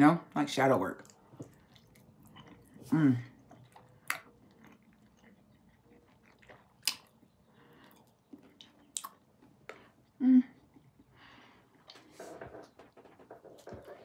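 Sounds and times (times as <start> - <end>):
quiet chewing: 1.0 - 14.0
woman humming: 10.2 - 10.7.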